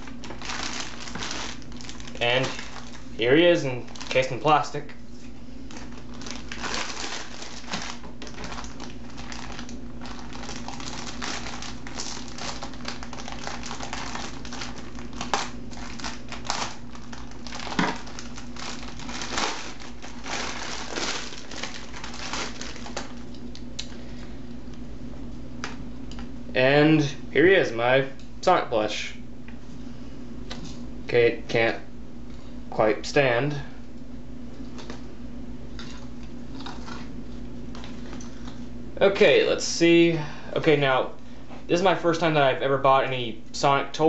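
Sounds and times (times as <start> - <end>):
plastic wrapping crinkling: 0.0 - 4.7, 5.6 - 24.0
steady low hum: 0.0 - 44.0.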